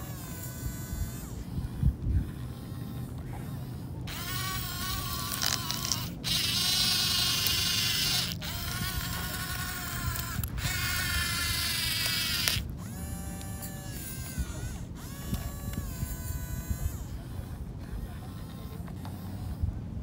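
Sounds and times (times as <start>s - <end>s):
toy electric motors whining: 0.0s - 19.7s.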